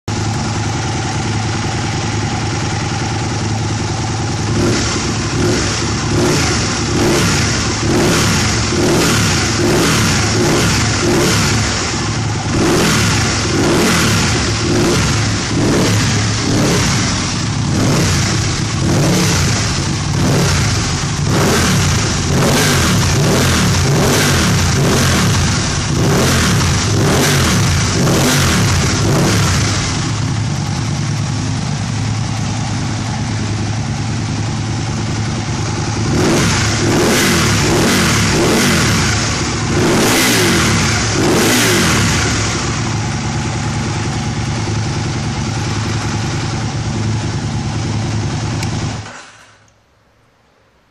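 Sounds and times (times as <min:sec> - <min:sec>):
motorcycle engine idling: 0:00.1 - 0:49.2
motorcycle engine revving: 0:00.1 - 0:49.6.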